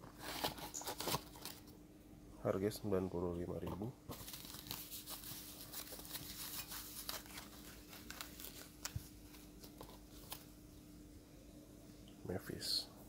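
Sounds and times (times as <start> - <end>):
paper wrapping crinkling: 0.0 - 1.7, 4.1 - 10.6.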